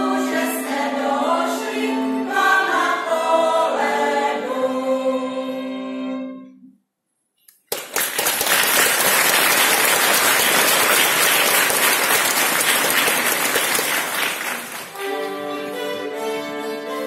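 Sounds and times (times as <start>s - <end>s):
audience applause: 7.7s - 16.1s.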